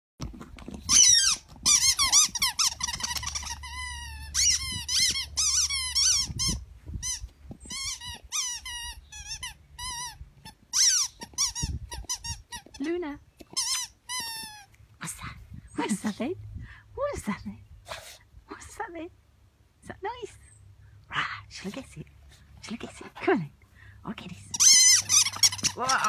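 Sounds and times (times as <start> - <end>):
squeaky toy squeaking: 0.8 - 14.7, 24.5 - 26.0.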